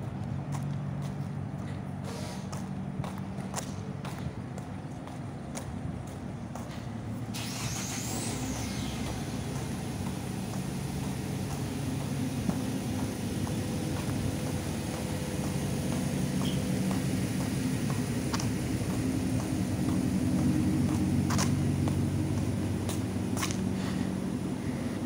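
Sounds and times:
vehicle engine running: 0:00.0 - 0:25.0.

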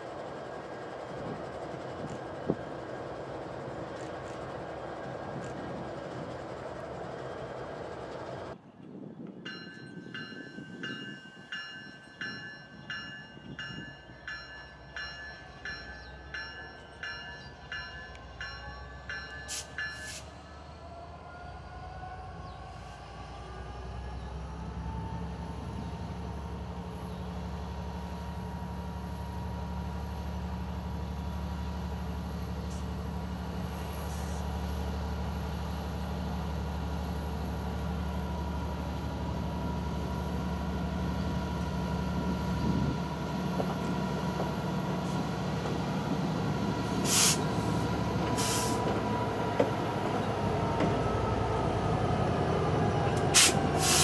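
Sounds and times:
locomotive diesel engine drone: 0:15.4 - 0:54.0.

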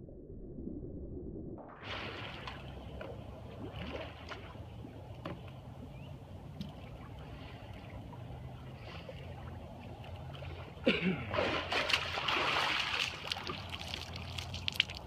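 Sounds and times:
water splash: 0:01.8 - 0:05.0, 0:11.2 - 0:15.0
pool water sloshing and lapping: 0:01.8 - 0:15.0.

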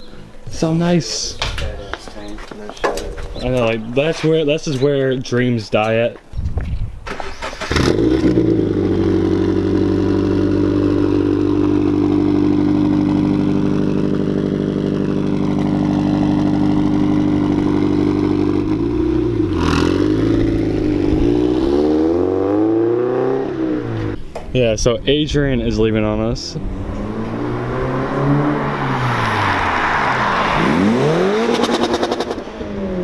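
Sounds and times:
car engine revving: 0:07.4 - 0:24.2, 0:26.6 - 0:33.0.

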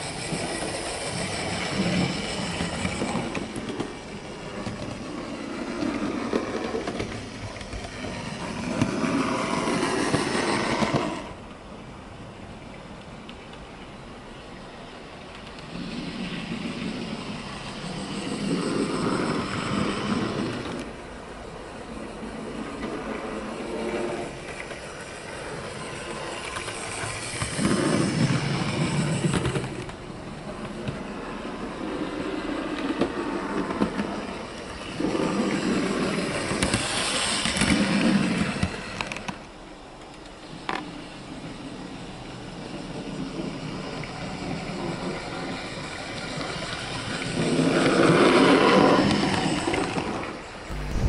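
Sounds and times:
model train wheels on rails: 0:00.0 - 0:51.0
model train motor whirring: 0:24.5 - 0:30.0, 0:34.5 - 0:39.4.

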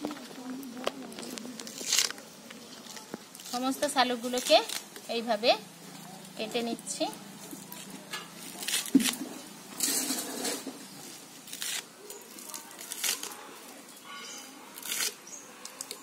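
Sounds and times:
blade chopping plant stems: 0:08.1 - 0:10.7.

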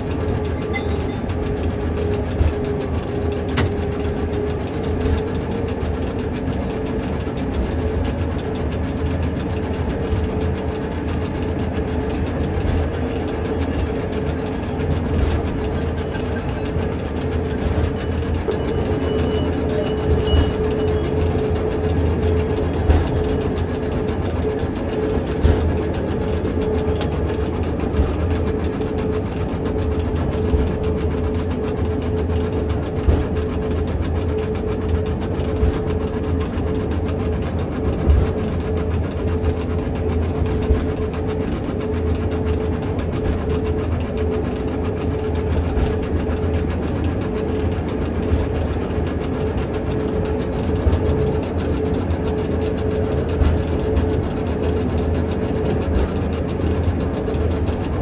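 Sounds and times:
constant whine: 0:00.0 - 0:58.0
railcar rumble: 0:00.0 - 0:58.0.

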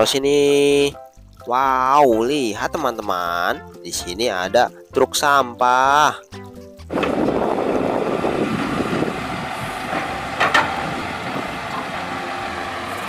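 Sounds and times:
garbage truck running: 0:06.9 - 0:13.0.

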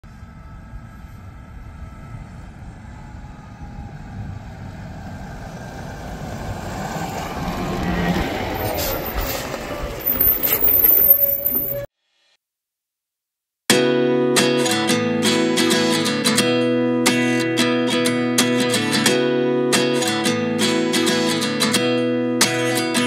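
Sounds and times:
tractor engine rumbling: 0:00.2 - 0:11.9.

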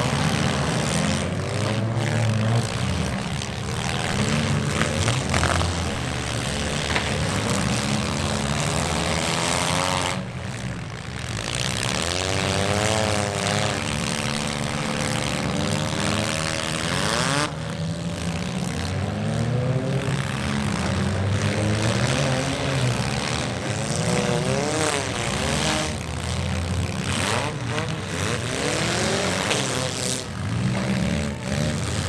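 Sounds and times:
car engines revving: 0:00.0 - 0:32.0
rushing exhaust noise: 0:00.0 - 0:32.0.

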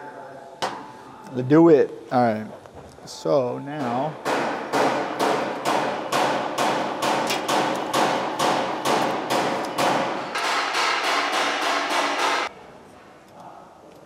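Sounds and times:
sharp percussive hits: 0:03.8 - 0:12.5.

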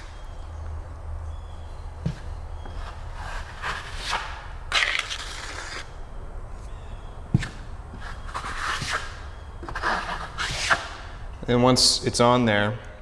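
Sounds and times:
trowel scraping drywall: 0:02.8 - 0:06.0, 0:08.0 - 0:11.0.

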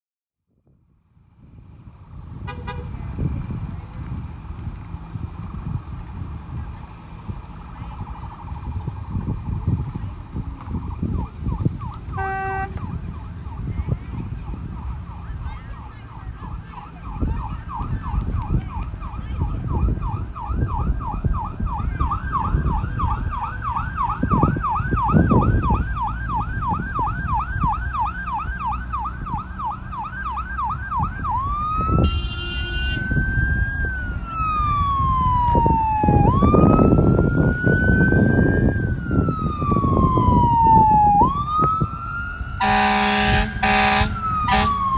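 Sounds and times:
low rumble of vehicle engines: 0:00.4 - 0:44.9
horn blasts: 0:02.4 - 0:03.0, 0:12.1 - 0:12.8, 0:32.0 - 0:33.1, 0:42.6 - 0:44.9
emergency siren yelp and wail: 0:05.4 - 0:44.9.

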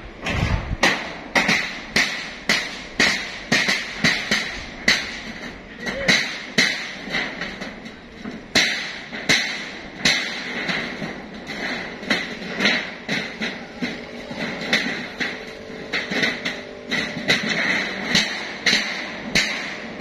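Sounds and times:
hammer striking steel: 0:00.8 - 0:20.0.

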